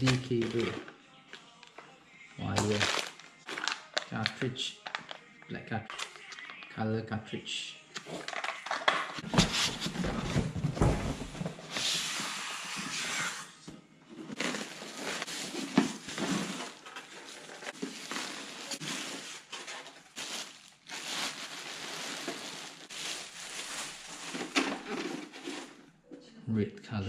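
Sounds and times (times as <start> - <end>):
plastic bag crinkling: 0.0 - 1.0, 2.5 - 5.2, 14.3 - 25.8
polystyrene foam rubbing: 11.6 - 13.6, 14.3 - 25.8.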